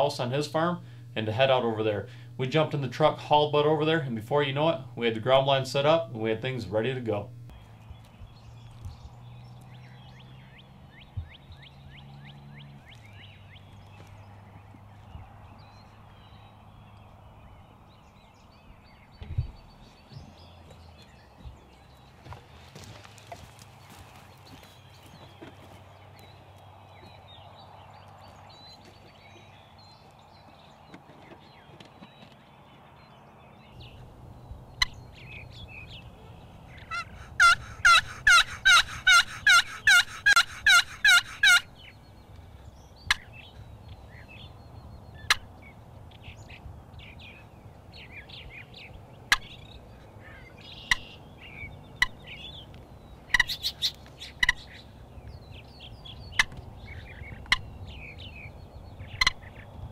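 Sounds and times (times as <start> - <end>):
turkey box call yelps: 36.7 - 41.9, 50.3 - 51.2, 53.3 - 54.8.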